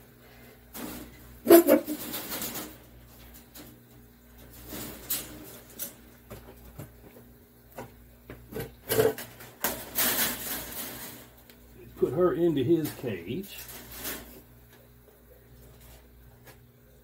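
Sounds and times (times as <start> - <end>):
wire-mesh cage rattling: 0.7 - 6.2, 8.8 - 11.5, 12.1 - 14.4.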